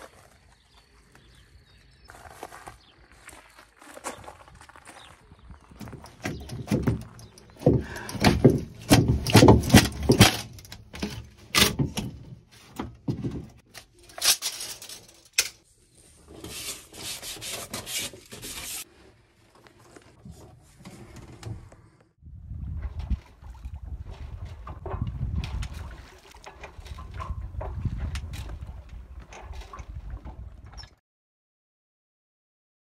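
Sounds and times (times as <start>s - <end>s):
tools knocking and clattering: 5.9s - 15.6s.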